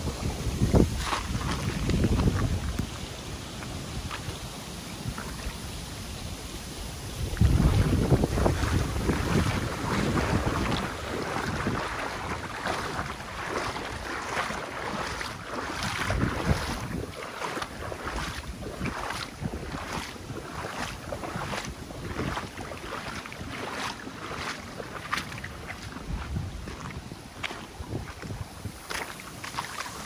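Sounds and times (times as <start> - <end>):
water rushing: 0.0 - 30.0
wind buffeting microphone: 0.0 - 30.0
footsteps: 0.7 - 4.4, 7.4 - 29.9.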